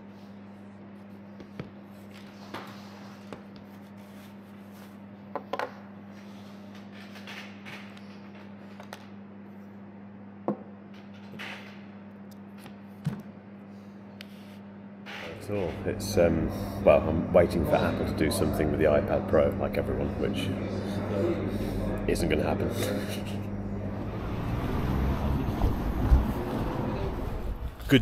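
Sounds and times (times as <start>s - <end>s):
steady low hum: 0.0s - 28.0s
soft rubbing and shuffling: 1.9s - 5.1s, 14.3s - 14.7s.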